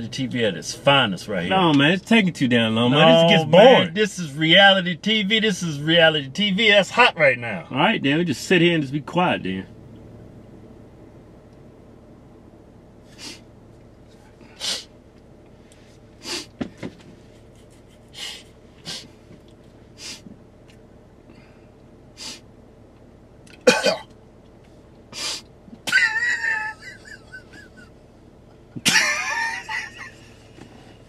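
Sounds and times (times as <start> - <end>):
men snorting and sniffing: 13.1 - 13.5, 14.4 - 14.9, 16.2 - 16.6, 17.4 - 19.2, 19.9 - 20.3, 22.2 - 22.5, 25.1 - 25.5
high-pitched laughter: 25.9 - 27.9, 28.9 - 30.3.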